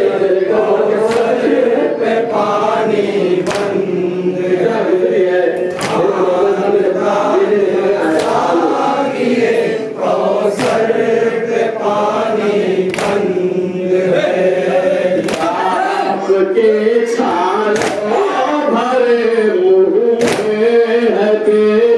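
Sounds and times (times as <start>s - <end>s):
men chanting in unison: 0.0s - 21.9s
sharp chest slaps: 1.1s - 1.4s, 3.4s - 3.8s, 5.7s - 6.0s, 8.2s - 8.4s, 10.6s - 10.9s, 12.9s - 13.3s, 15.2s - 15.6s, 17.8s - 18.1s, 20.2s - 20.6s.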